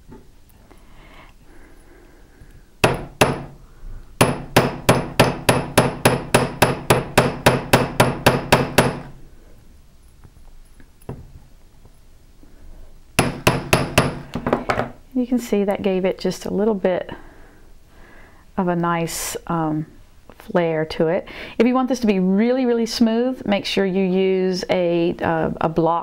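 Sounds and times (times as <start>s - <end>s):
hammer striking wire on metal block: 2.8s - 3.6s, 4.2s - 9.1s, 13.2s - 14.4s.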